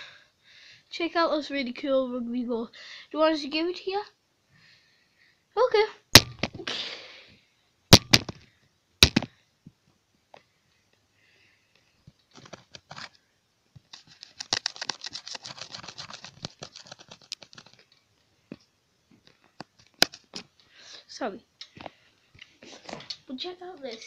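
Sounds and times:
sharp knocks: 6.2 - 6.6, 7.9 - 8.4, 9.0 - 9.3
dense crackling clicks and rustling: 12.1 - 20.6.

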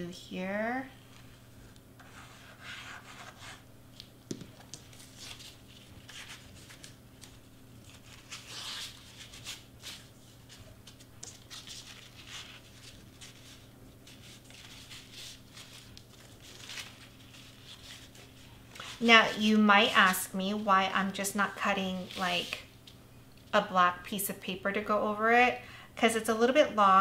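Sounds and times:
crepe paper rustling: 2.0 - 20.3.

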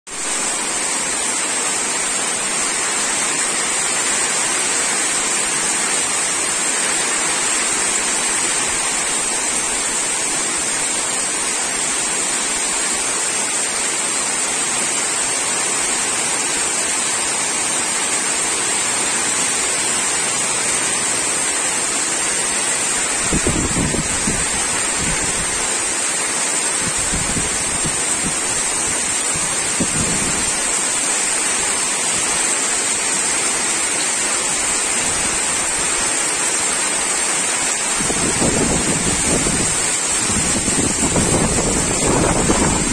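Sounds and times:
heavy rain splashing into water: 0.1 - 42.9.

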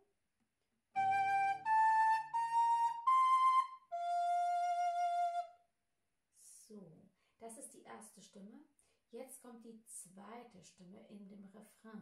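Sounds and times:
wooden recorder playing: 1.0 - 5.5.

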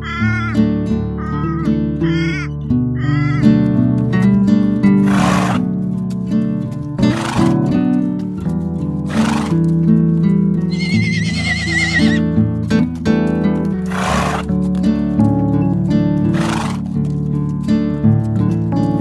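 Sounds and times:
whinny-like horse call: 0.0 - 0.6, 1.2 - 3.5, 5.0 - 5.6, 9.1 - 9.5, 10.7 - 12.3, 13.9 - 14.4, 16.3 - 16.8.

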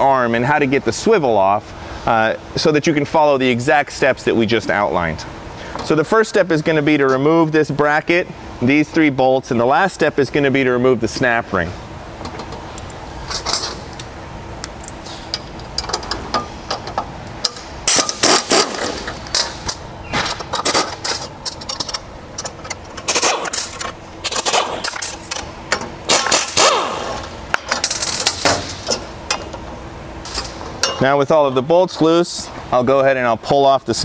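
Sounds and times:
pneumatic wrench rattling: 14.9 - 29.6.

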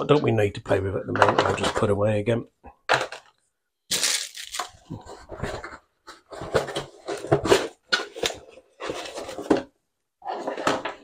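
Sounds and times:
plastic bag crinkling: 3.9 - 5.0.

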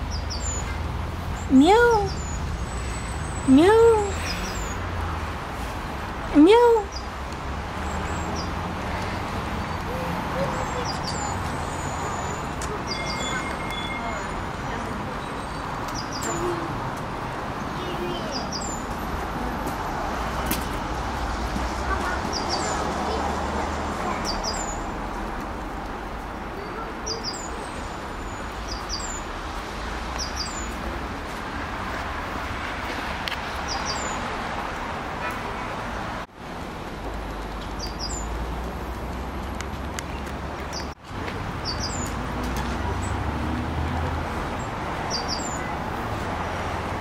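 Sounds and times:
small birds chirping: 0.0 - 5.0, 6.4 - 7.2, 7.8 - 14.4, 15.2 - 16.7, 17.6 - 19.0, 22.1 - 23.2, 24.1 - 25.0, 26.5 - 29.5, 30.1 - 30.9, 33.5 - 34.3, 37.7 - 38.4, 40.0 - 42.2, 44.6 - 45.7
traffic din with low rumble: 0.0 - 47.0.

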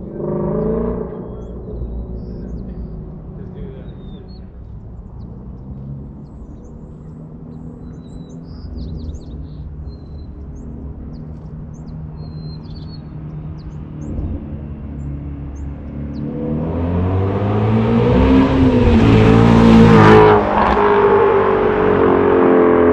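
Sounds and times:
small birds chirping: 0.0 - 16.9
car exhaust approaching: 0.0 - 22.9.

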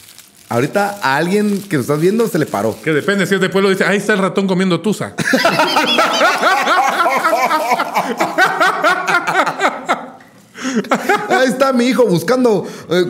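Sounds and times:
person laughing heartily: 5.2 - 11.6.

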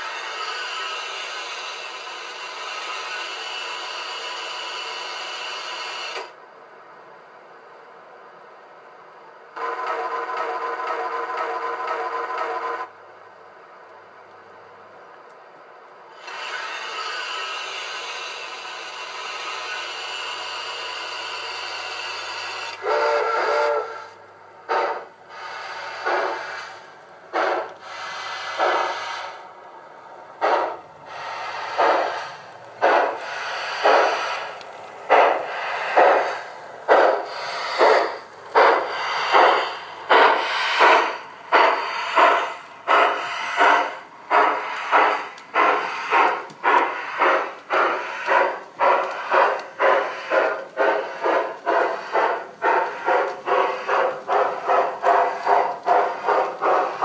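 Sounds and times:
steam chuffs: 0.0 - 6.4, 9.5 - 12.9, 16.1 - 57.0
model train whistle: 22.7 - 24.2.

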